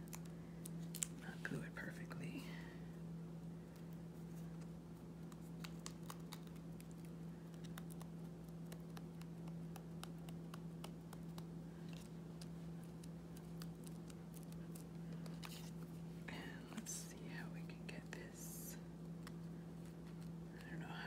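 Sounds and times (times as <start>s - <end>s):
steady low hum: 0.0s - 21.0s
fingers tapping card on mat: 7.4s - 12.1s.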